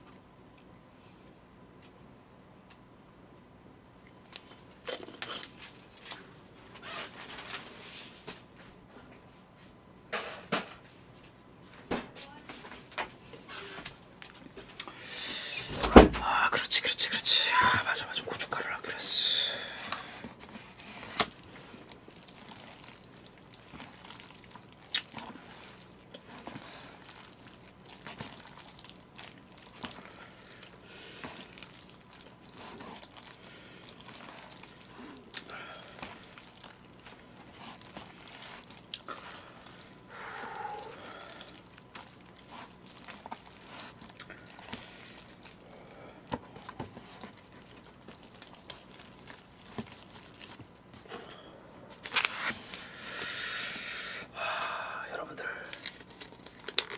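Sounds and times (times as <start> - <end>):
noodles squelching: 17.4 - 50.8.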